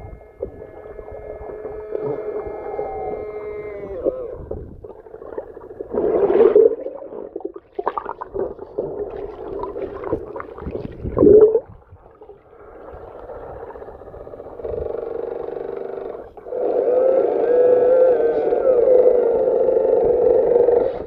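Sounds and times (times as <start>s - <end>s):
underwater sloshing: 0.0s - 16.7s
steady multi-tone hum: 0.0s - 21.0s.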